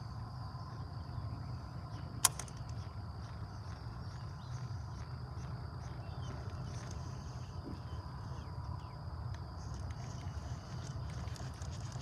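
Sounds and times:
insects chirring: 0.0 - 12.0
sharp click: 2.2 - 2.6
faint ticks: 8.6 - 12.0.

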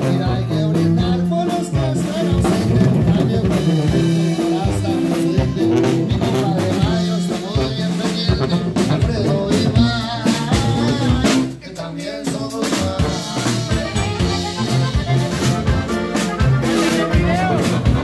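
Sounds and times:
accordion melody: 0.0 - 18.0
band playing with drums and tuba: 0.0 - 18.0.

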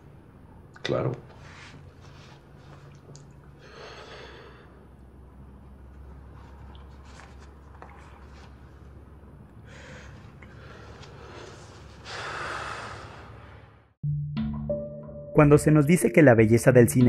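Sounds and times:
soft breathing: 3.6 - 5.0, 9.6 - 13.9
breathy rush of noise: 9.6 - 14.0.

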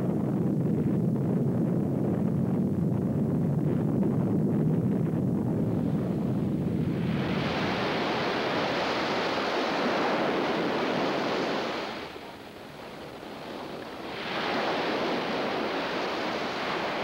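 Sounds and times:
sea surf rushing: 6.8 - 17.0.

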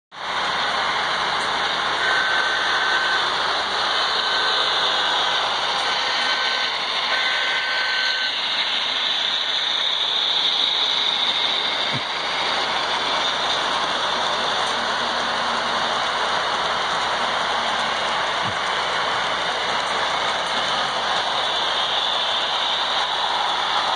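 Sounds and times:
model train running: 0.2 - 23.9
air whistle blasts: 6.1 - 12.3.

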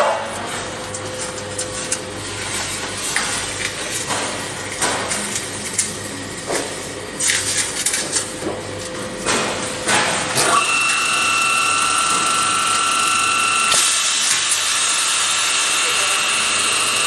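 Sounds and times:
machine whine: 5.1 - 17.0.

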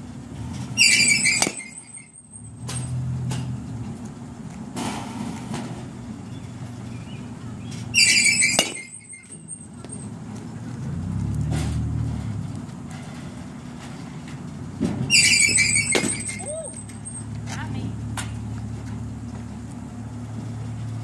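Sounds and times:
bat hitting ball ping: 0.8 - 2.1, 8.0 - 9.4, 15.1 - 16.5.

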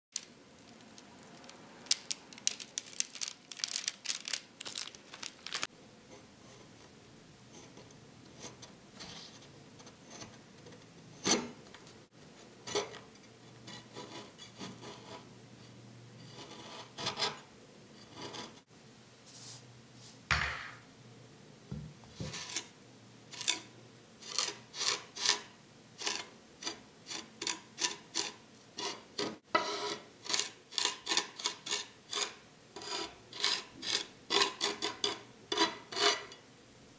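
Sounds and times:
knife rasping seeds through sugar: 22.2 - 22.7, 23.3 - 36.4
knife scraping vanilla pod: 22.3 - 22.7, 23.3 - 36.4.

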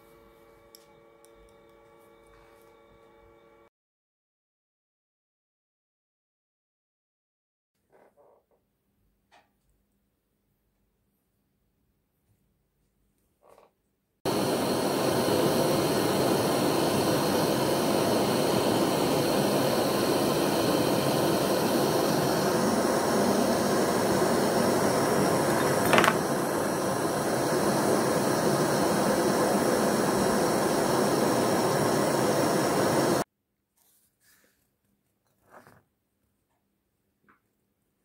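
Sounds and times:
gas torch hissing: 14.3 - 33.3.

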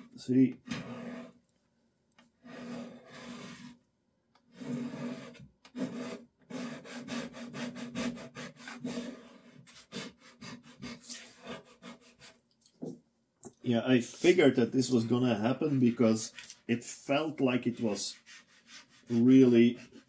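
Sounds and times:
scraper scraping varnish off wood: 17.5 - 20.0.

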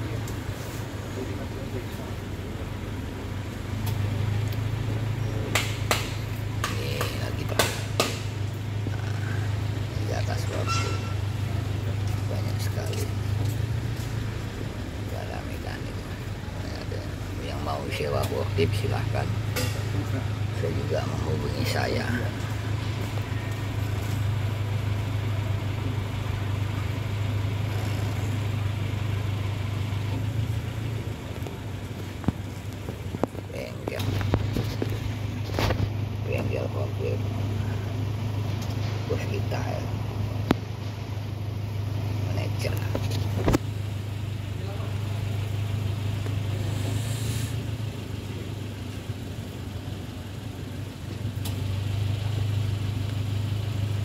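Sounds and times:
forklift engine humming: 0.0 - 54.0
sharp knocks and clicks: 5.5 - 8.4.

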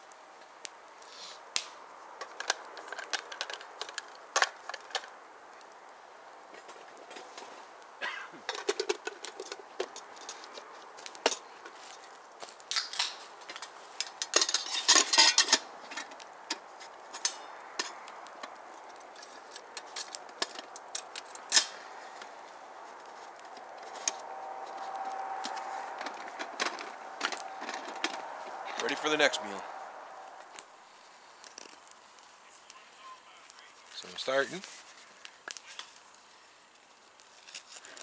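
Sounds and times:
metal dishes clinking: 14.3 - 15.6.

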